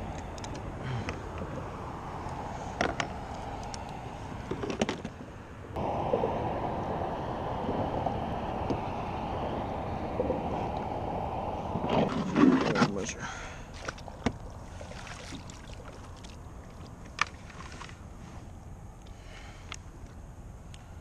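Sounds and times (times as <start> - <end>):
wind and water noise: 0.0 - 21.0
wind noise on microphone: 5.8 - 12.7.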